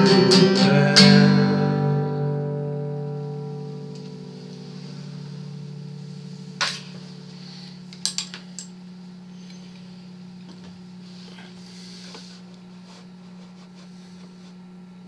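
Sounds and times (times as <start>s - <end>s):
acoustic guitar chord ringing: 0.0s - 7.9s
steady low hum: 0.0s - 15.0s
clicks and knocks of handling: 7.9s - 8.7s.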